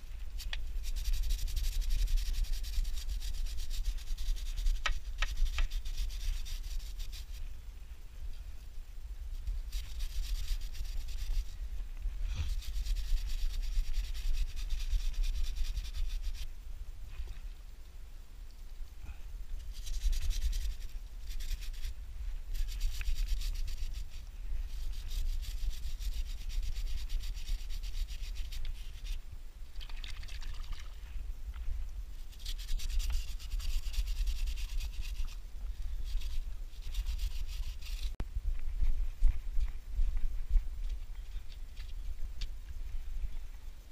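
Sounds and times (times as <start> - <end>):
brush scrubbing wet chain: 0.4 - 7.4, 9.3 - 11.6, 12.4 - 16.5, 19.6 - 29.2, 32.2 - 35.4, 36.0 - 38.2
steady low rumble: 34.6 - 43.9.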